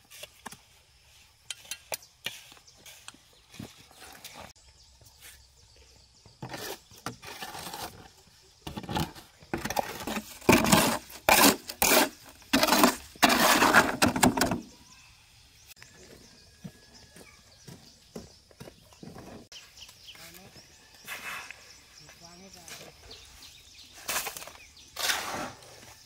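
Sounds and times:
shovel scraping mortar in wheelbarrow: 0.0 - 4.6, 6.4 - 14.7, 21.0 - 21.8, 22.7 - 26.0.

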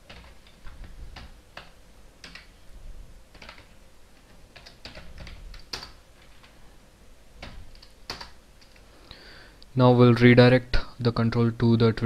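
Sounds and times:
computer keyboard typing: 0.0 - 2.5, 3.3 - 6.6, 7.4 - 8.8.

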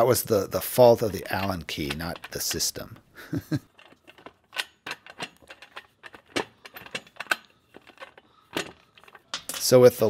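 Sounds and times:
metallic clicks and clinks: 1.2 - 10.0.

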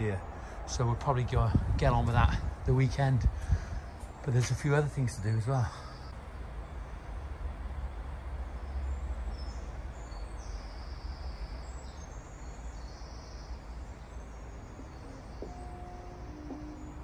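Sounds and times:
steady low rumble: 0.0 - 5.4
faint bird chirps: 3.4 - 7.1, 8.5 - 17.0.

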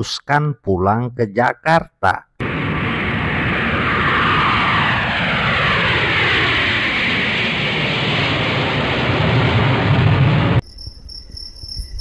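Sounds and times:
airplane flying past: 2.4 - 10.6.

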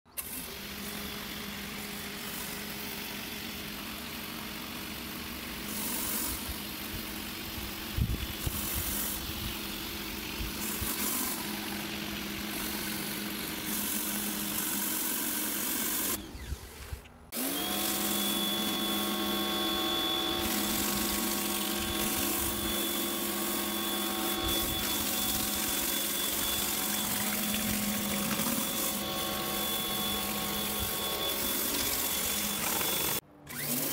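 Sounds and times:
pressure washer motor running: 0.1 - 33.9
water spray hissing on concrete: 0.7 - 15.1, 20.5 - 33.2.

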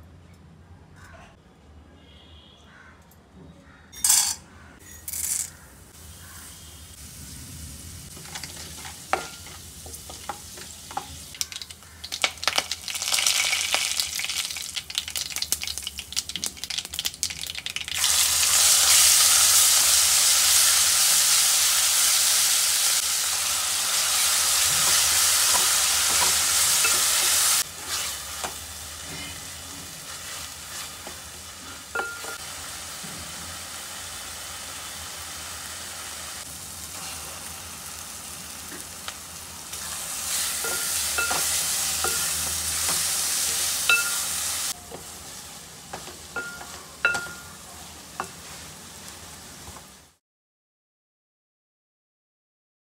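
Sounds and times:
food sizzling in a pan: 5.9 - 50.2
spices crackling in oil: 8.0 - 33.0
spatula scraping a pan: 24.7 - 32.2.

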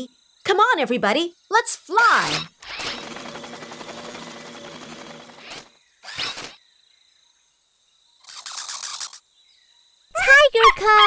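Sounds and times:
cartoon propeller whirring: 2.2 - 6.6
brief squeak: 6.0 - 6.6, 8.2 - 9.2.

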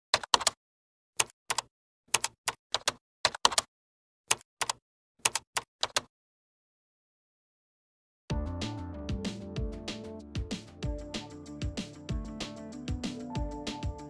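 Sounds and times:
keyboard keystroke clicks: 1.2 - 3.7, 4.3 - 6.1.

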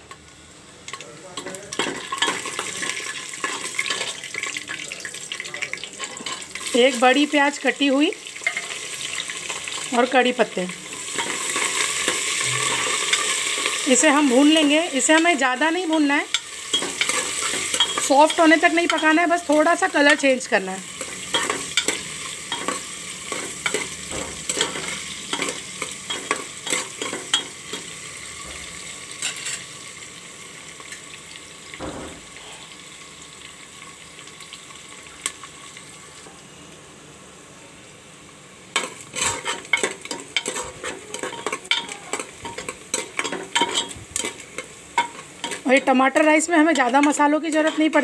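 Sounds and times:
onions sizzling in oil: 0.0 - 48.0
metal spoon scraping pot: 39.1 - 44.4.

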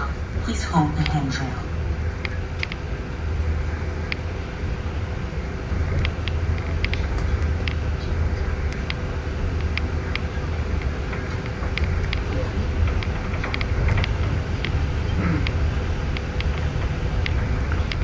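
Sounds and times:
bus engine and road rumble: 0.0 - 18.0
faint steady hum: 0.0 - 18.0
light clicks and rattles: 9.6 - 18.0.

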